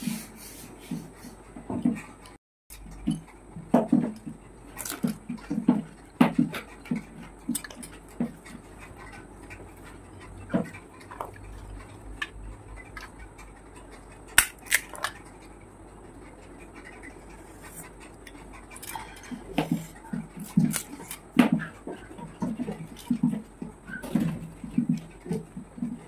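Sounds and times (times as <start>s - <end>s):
crunchy chewing: 2.0s - 26.0s
crisp shells cracking: 14.4s - 15.2s.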